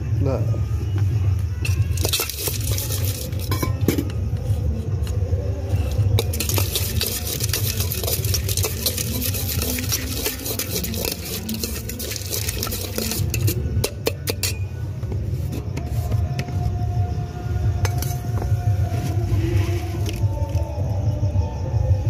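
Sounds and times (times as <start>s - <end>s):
spoon scraping a metal pot: 1.7s - 4.1s, 6.2s - 14.8s.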